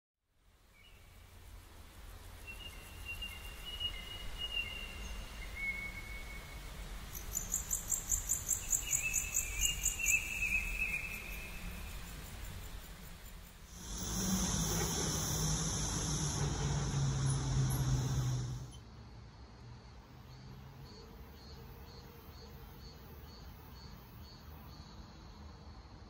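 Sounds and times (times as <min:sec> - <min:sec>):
whistled bird calls: 0:02.5 - 0:06.6, 0:08.5 - 0:11.8
low steady rumble: 0:13.7 - 0:18.8.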